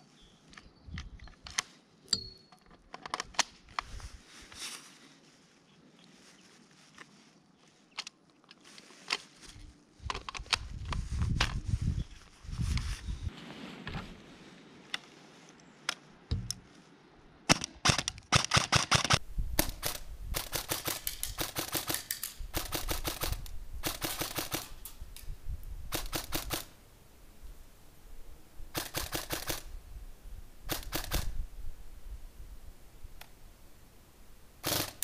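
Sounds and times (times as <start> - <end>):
airsoft gun full-auto bursts: 17.5 - 24.8, 25.9 - 26.7, 28.7 - 29.7, 30.7 - 31.3, 34.6 - 35.0.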